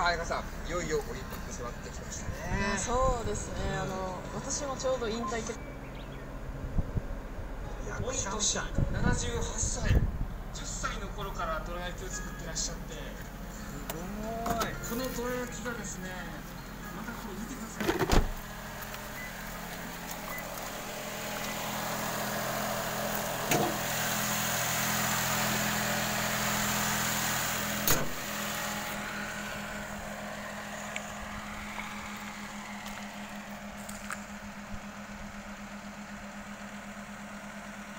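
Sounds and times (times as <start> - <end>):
car engine idling: 0.0 - 37.9.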